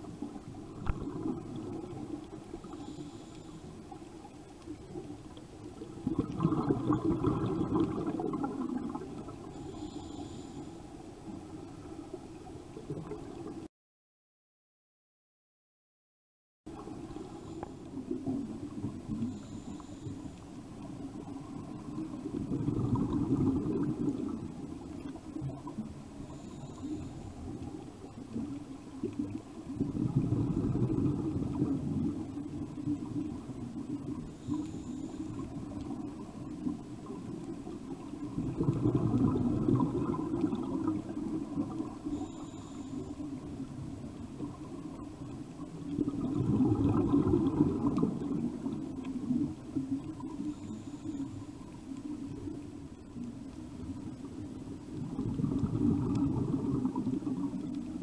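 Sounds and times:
exhaled bubbles rushing: 0.0s - 2.7s, 4.8s - 9.5s, 20.9s - 26.4s, 27.3s - 34.7s, 35.3s - 42.3s, 43.2s - 50.6s, 53.8s - 58.0s
regulator hiss on inhale: 1.4s - 5.0s, 9.2s - 11.9s, 17.0s - 21.5s, 24.2s - 28.1s, 33.9s - 36.7s, 41.0s - 44.3s, 50.2s - 52.0s.

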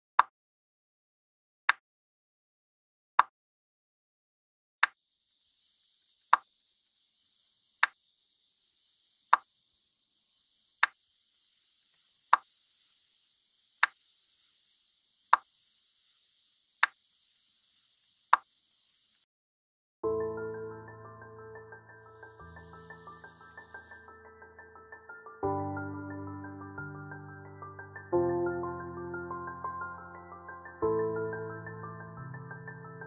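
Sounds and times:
steady high hiss: 5.0s - 19.3s, 22.0s - 24.2s
slow even ticks: 16.8s - 17.0s
piano music: 20.0s - 33.0s.

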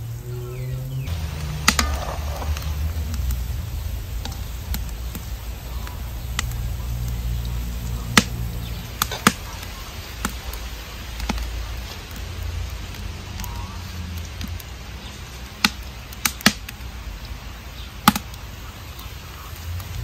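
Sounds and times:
fritters deep-frying in oil: 0.0s - 20.0s
stove low rumble: 0.0s - 20.0s
slotted spoon clicks and pops: 15.6s - 16.9s, 18.0s - 18.4s.

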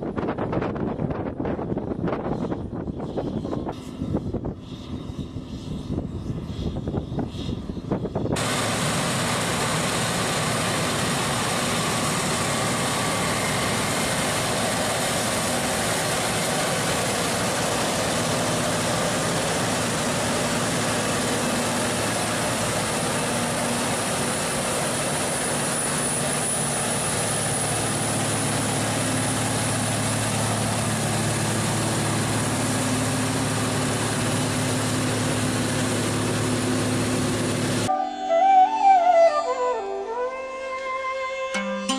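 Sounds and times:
large engine running: 0.0s - 37.9s
broad rushing hiss: 8.4s - 37.9s.

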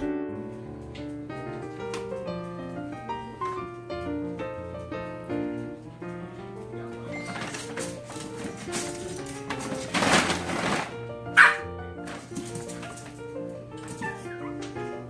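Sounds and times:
background piano music: 0.0s - 15.0s.

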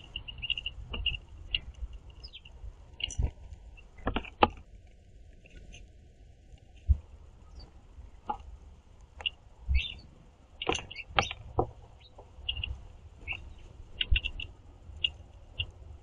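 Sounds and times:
songbirds chirping: 0.0s - 16.0s
bird pecking on wooden feeder: 0.1s - 5.9s.

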